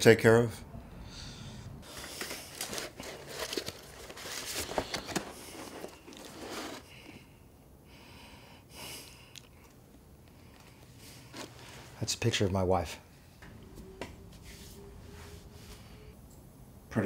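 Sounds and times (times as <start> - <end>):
paper rustling and crinkling: 1.8 - 7.1, 10.6 - 12.0.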